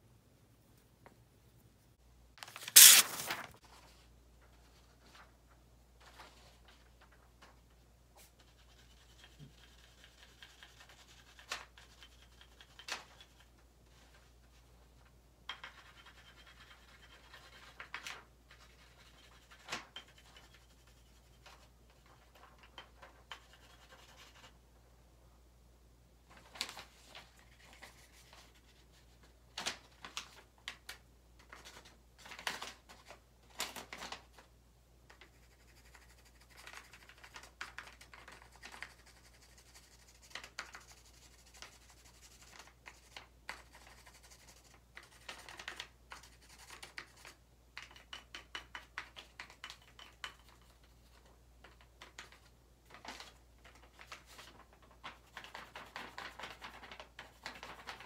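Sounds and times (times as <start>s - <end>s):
pencil scratching on paper: 2.7s - 3.3s, 8.4s - 12.8s, 35.2s - 37.1s, 38.2s - 45.5s.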